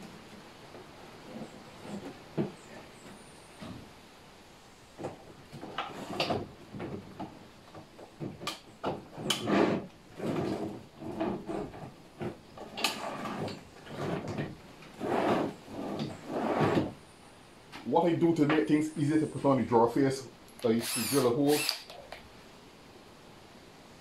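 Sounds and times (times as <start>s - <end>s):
drawer scraping on slides: 1.2s - 2.9s, 5.6s - 7.0s, 9.1s - 17.0s.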